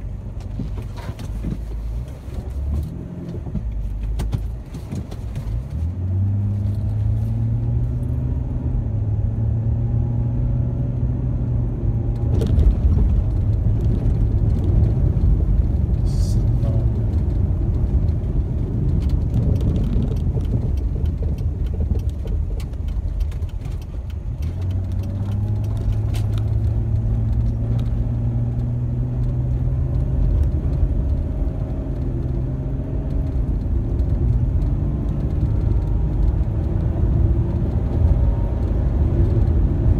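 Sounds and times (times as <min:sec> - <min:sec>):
car engine from inside cabin: 0:00.0 - 0:39.9
tyre and road rumble: 0:00.0 - 0:39.9
small clicks and rattles: 0:12.2 - 0:28.0.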